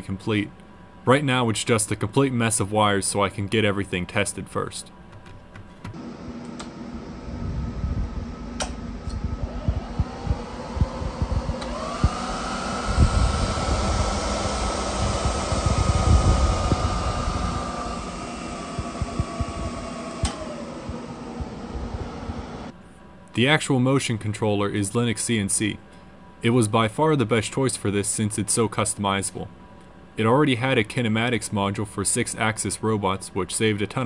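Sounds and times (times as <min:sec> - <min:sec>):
electric machinery whirring: 0:05.9 - 0:22.8
rising and falling whine: 0:06.0 - 0:22.7
low crackling rumble: 0:07.0 - 0:22.7.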